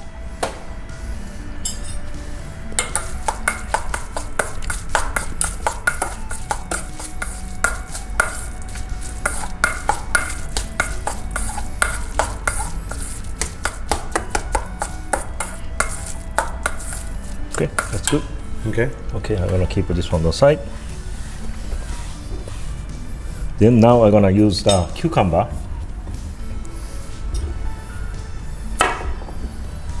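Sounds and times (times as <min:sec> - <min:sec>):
metal spoon scraping steel bowl: 0:02.8 - 0:18.4.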